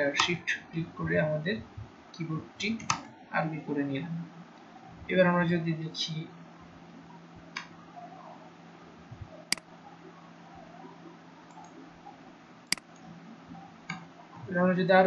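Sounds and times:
faint low hum: 0.0s - 15.0s
computer mouse clicks: 9.5s - 9.7s, 11.5s - 11.8s, 12.7s - 13.1s.

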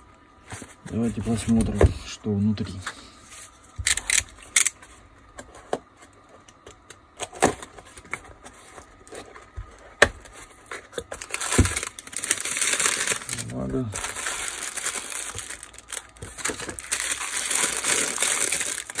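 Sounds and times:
wrapping paper crinkling: 10.6s - 19.0s.

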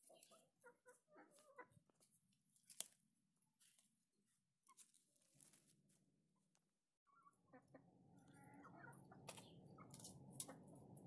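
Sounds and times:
dry soil and leaves crunching: 0.0s - 6.7s
faint animal calls: 7.1s - 10.7s.

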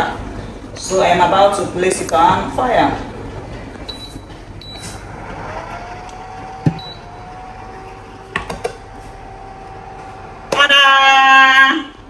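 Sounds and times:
hob running steady tone: 0.0s - 12.0s
short high beeps: 3.9s - 5.0s, 6.8s - 7.1s.

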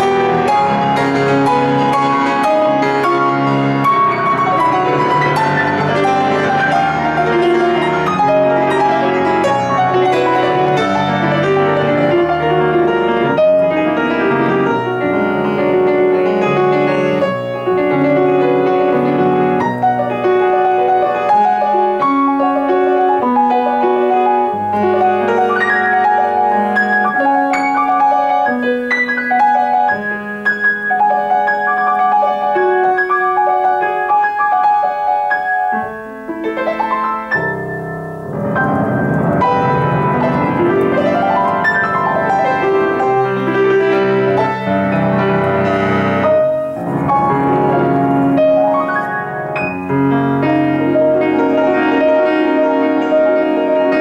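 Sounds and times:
classical grand piano: 0.0s - 54.0s.

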